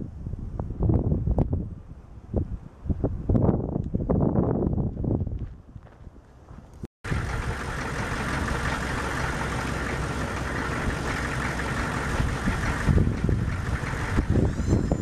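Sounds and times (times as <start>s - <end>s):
faint wind: 0.0s - 15.0s
diesel engine idling: 7.0s - 15.0s.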